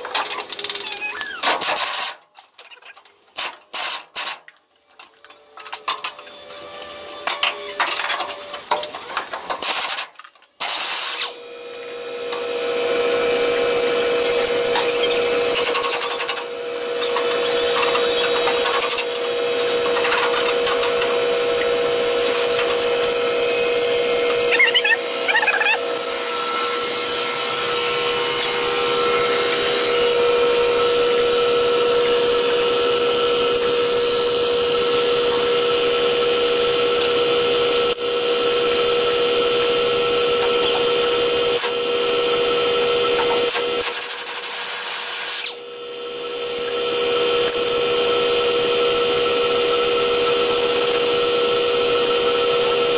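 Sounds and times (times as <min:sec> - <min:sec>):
brief squeaks: 0:00.7 - 0:01.6, 0:24.5 - 0:25.8
air compressor humming: 0:10.7 - 0:52.9.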